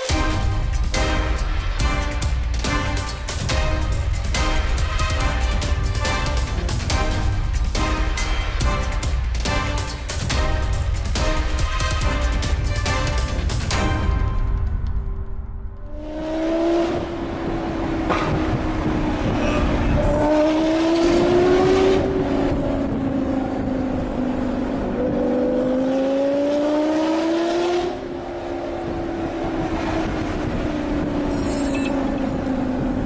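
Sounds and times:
sports car engine accelerating: 15.8s - 33.0s.

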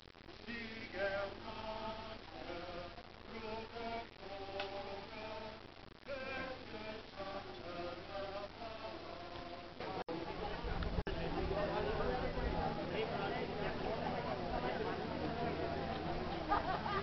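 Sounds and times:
choir singing a hymn: 0.5s - 10.0s.

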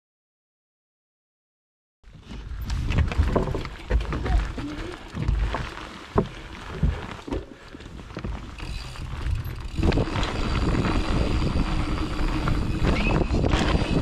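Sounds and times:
bike clicks rattles and creaks: 2.1s - 14.0s
bike tyre rumble on dirt: 2.1s - 14.0s
wind on microphone: 2.2s - 5.6s, 8.2s - 14.0s.

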